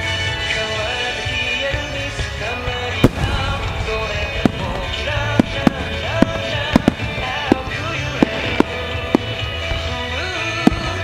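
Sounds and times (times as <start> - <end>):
pop music with singing: 0.0 - 11.0
firework shells bursting: 2.9 - 11.0.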